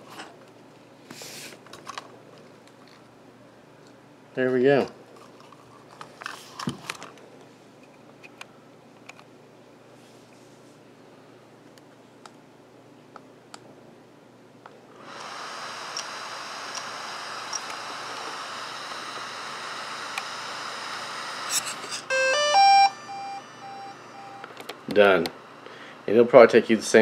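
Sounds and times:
cooling fan whirring: 0.0 - 27.0
start-up chime beeps: 22.1 - 24.5.

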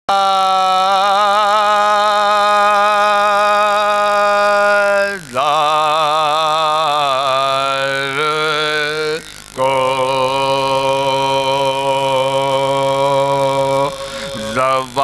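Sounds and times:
man chanting a lament: 0.1 - 15.0.

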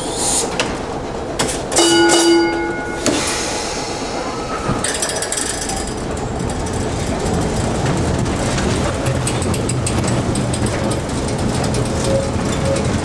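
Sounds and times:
streetcar rattling and clicking: 0.0 - 13.0
steady ringing tone: 1.8 - 3.1.

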